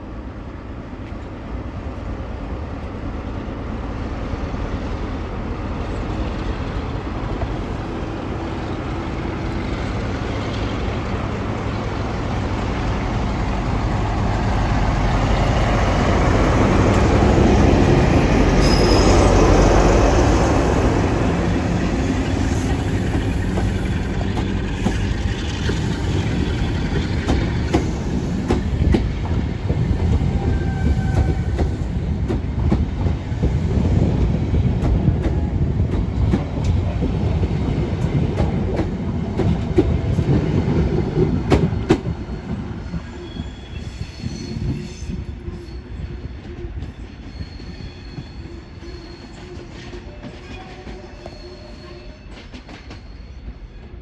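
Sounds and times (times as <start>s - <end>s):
train wheels rumbling: 0.0s - 54.0s
faint wheel squeal: 43.1s - 45.8s, 47.2s - 53.5s.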